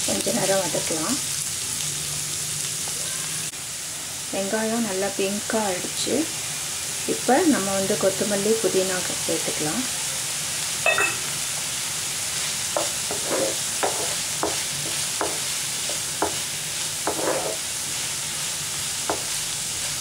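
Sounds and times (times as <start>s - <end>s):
food sizzling in oil: 0.0s - 20.0s
spatula scraping pan: 12.8s - 18.3s.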